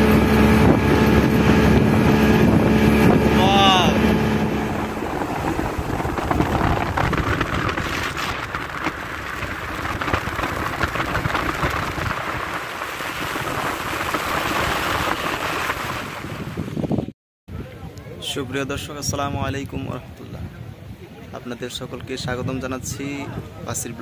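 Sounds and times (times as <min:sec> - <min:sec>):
water rushing along hull: 0:00.0 - 0:17.1
wind on microphone: 0:00.0 - 0:24.0.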